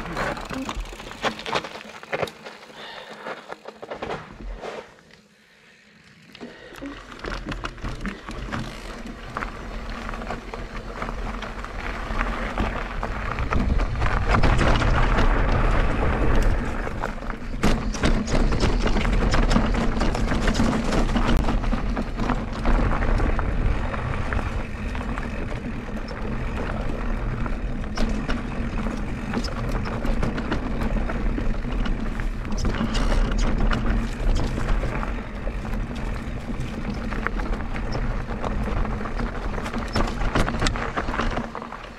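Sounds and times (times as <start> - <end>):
bike knocks and rattles: 0.0 - 4.6, 7.1 - 41.9
bike tyre noise: 0.0 - 41.9
wind rumble on microphone: 9.0 - 41.9.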